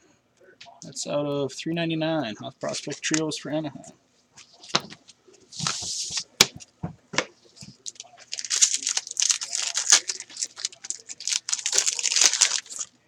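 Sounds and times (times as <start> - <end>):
foil pack crinkling: 7.6 - 13.0.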